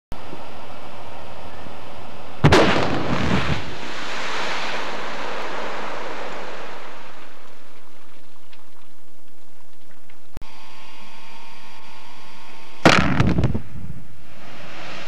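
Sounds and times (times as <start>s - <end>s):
blast bang: 2.4s - 7.6s, 12.8s - 15.0s.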